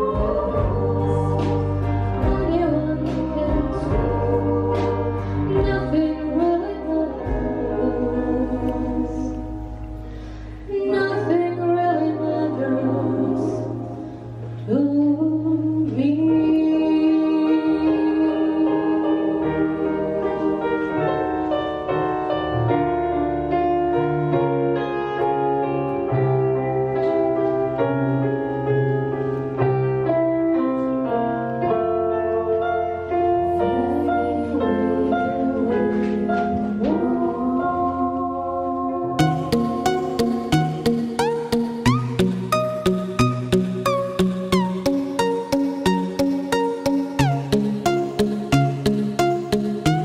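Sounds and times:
women's choir singing: 0.0 - 9.5, 18.0 - 21.5, 36.8 - 40.7
keyboard and small band: 0.0 - 50.0.

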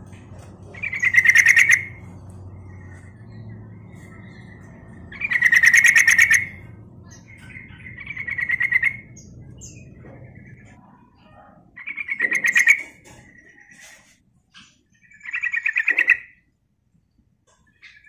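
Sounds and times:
bird chattering calls: 0.6 - 10.9, 11.6 - 13.9, 14.9 - 16.5.

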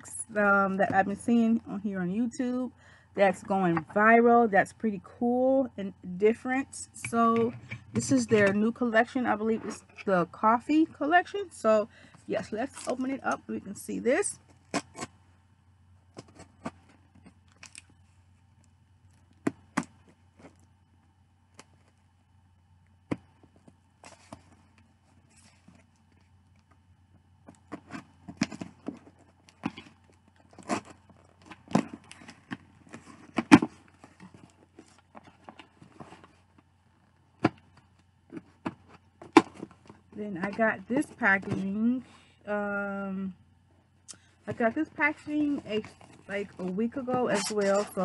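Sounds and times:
cardboard clicks and rustles: 23.1 - 26.8, 27.4 - 40.7.

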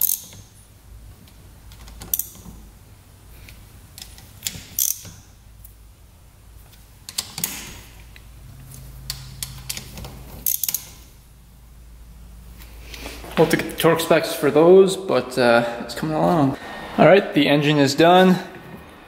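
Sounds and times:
metal clinks of wrench: 0.0 - 0.5, 4.4 - 5.3, 9.1 - 11.0
socket ratchet clicking: 0.0 - 0.6, 1.7 - 2.6, 3.9 - 5.3, 9.0 - 11.0.

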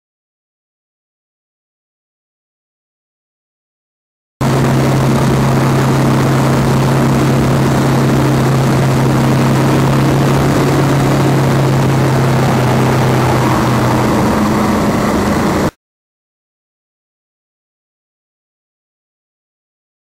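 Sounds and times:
wind noise on microphone: 4.4 - 15.7
motorcycle engine cruising: 4.4 - 15.8.

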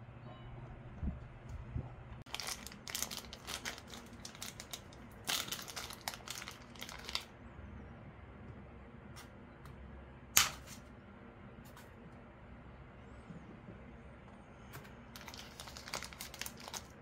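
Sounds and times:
plastic zip bag crinkling: 2.3 - 7.3, 15.2 - 17.0.

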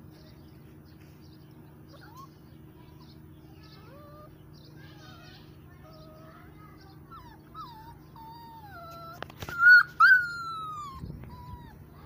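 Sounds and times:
puppy high-pitched cries: 1.9 - 2.4, 3.7 - 12.0
puppy whining: 1.9 - 2.4, 3.7 - 12.0.

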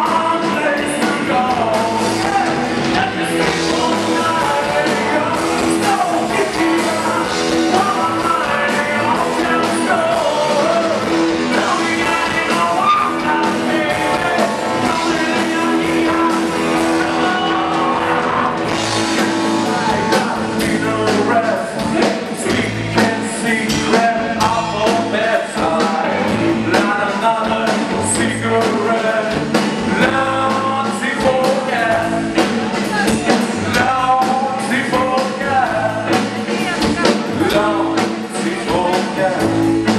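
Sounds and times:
drums: 0.0 - 39.9
electric guitar: 0.0 - 39.9
man singing: 0.0 - 39.9.

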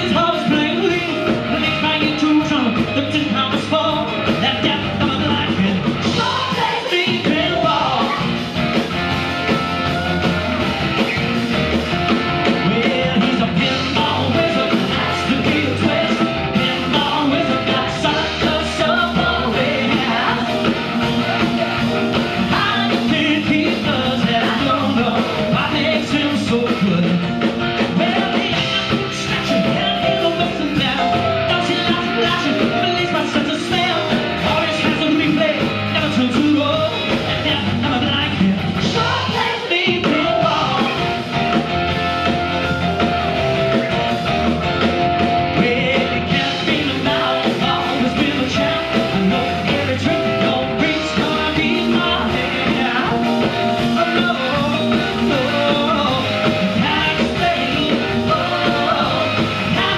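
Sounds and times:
man singing lead vocal: 0.0 - 8.4, 12.2 - 41.6, 45.2 - 59.9
electric guitar: 0.0 - 59.9
live rock band playing: 0.0 - 59.9
piano: 0.0 - 59.9.

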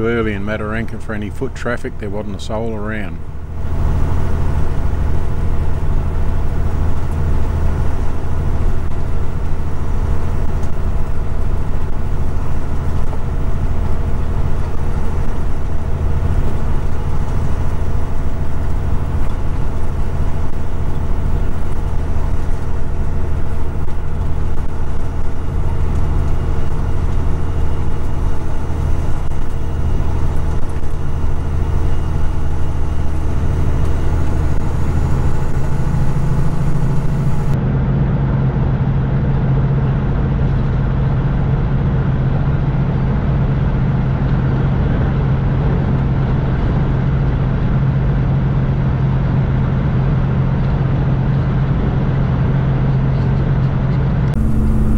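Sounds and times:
road noise: 0.0 - 37.7, 52.8 - 54.9
truck diesel engine drone: 0.0 - 54.9.

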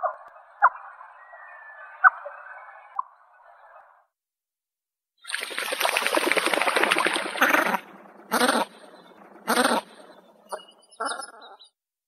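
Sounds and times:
duck rattling call: 6.3 - 11.5
short duck calls: 7.4 - 8.8, 9.5 - 10.0.

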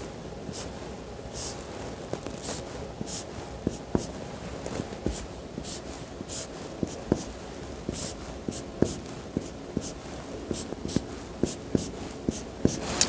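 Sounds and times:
marker scratching on whiteboard: 1.4 - 1.6, 2.4 - 4.2, 5.0 - 12.9.

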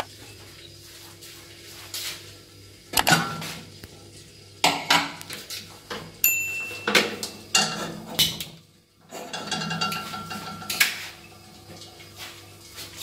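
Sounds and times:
pot clanking on metal grate: 3.0 - 3.6, 4.6 - 5.2, 5.9 - 11.2.

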